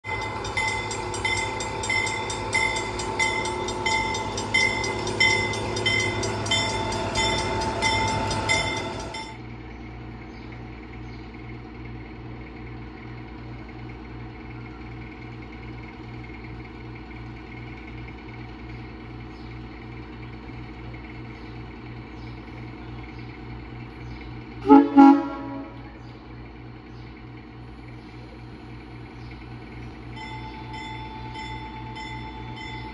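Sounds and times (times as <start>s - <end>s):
loud ringing bell pulses: 0.0s - 9.4s, 30.1s - 32.9s
diesel locomotive idling: 0.0s - 32.9s
locomotive horn blasts: 24.6s - 26.0s.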